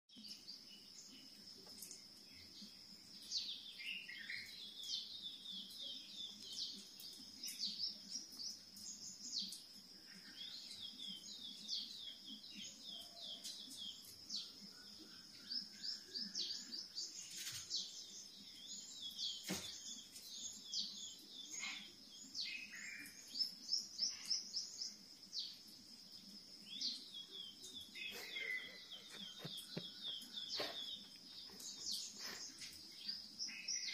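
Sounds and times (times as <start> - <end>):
recorded birdsong chirps and trills: 0.1 - 33.9.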